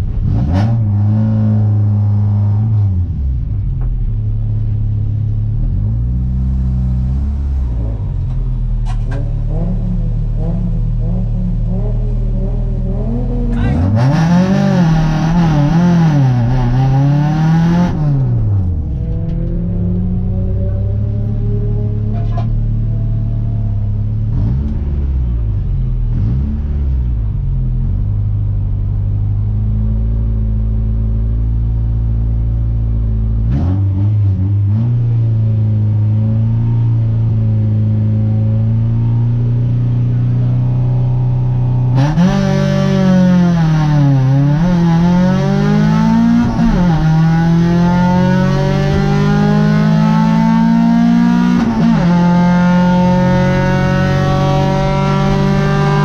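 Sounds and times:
car engine revving: 0:00.0 - 0:56.0.

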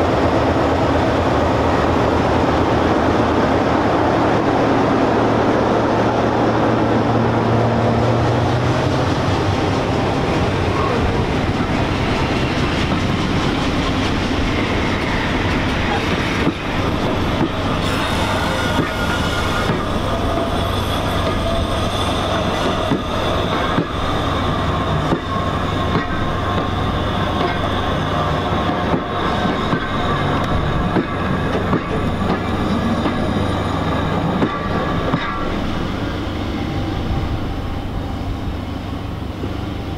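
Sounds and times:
diesel locomotive engine: 0:00.0 - 0:39.9
wheel squeal: 0:17.1 - 0:31.3.

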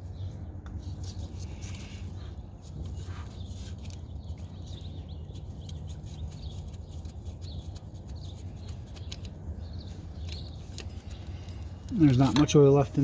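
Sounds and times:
small bird chirping: 0:02.8 - 0:12.4.

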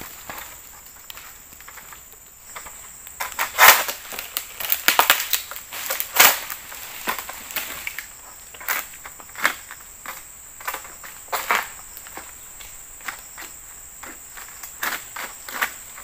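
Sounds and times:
sickle cutting palm fronds: 0:02.6 - 0:09.7.

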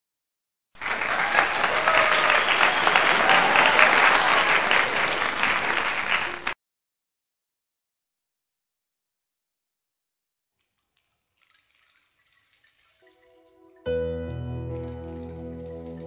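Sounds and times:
applause: 0:00.8 - 0:06.6.

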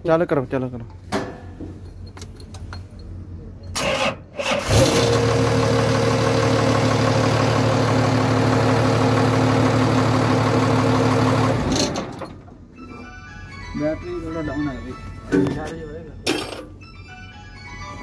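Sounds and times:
diesel engine cranking and idling: 0:03.7 - 0:12.8.

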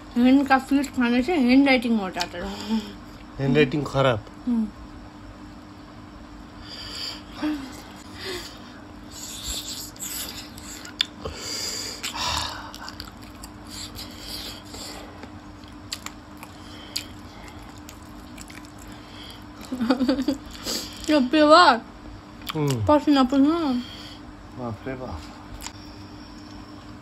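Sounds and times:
wet chewing mouth noises: 0:09.1 - 0:11.2, 0:12.0 - 0:19.8.

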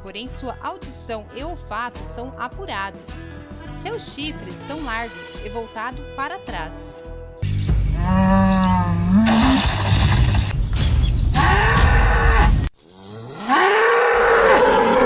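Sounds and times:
buffalo lowing: 0:07.8 - 0:09.6.

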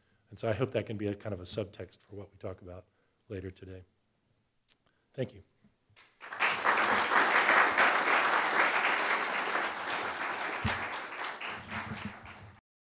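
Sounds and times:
audience applauding: 0:06.0 - 0:12.6.

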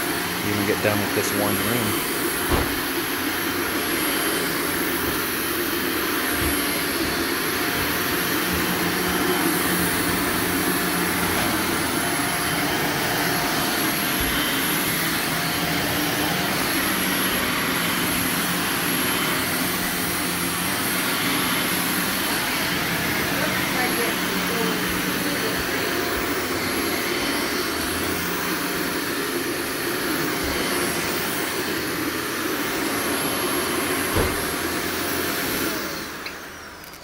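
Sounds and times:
vacuum motor running: 0:00.0 - 0:37.0.

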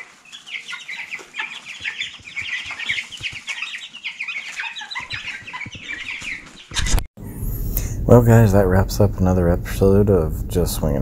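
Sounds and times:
chicks peeping: 0:00.0 - 0:07.1.

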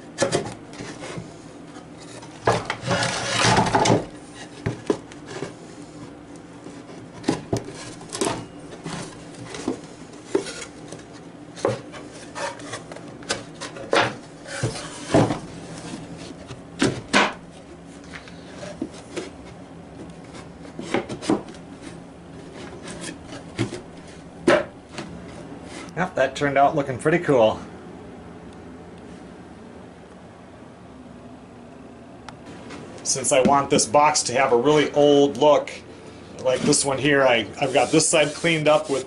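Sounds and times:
wood rubbing: 0:00.2 - 0:26.0, 0:36.4 - 0:39.0.

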